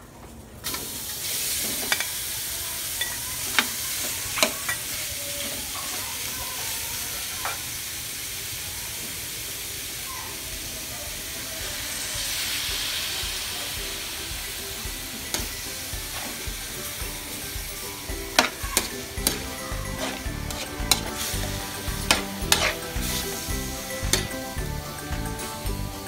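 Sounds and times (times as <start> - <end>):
pork sizzling in a wok: 0.6 - 26.0
metal spoon scraping a wok: 18.0 - 24.5.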